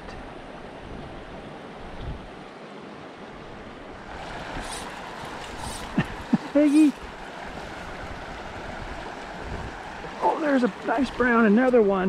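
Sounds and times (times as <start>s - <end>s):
creek water rushing over stones: 2.5s - 12.0s.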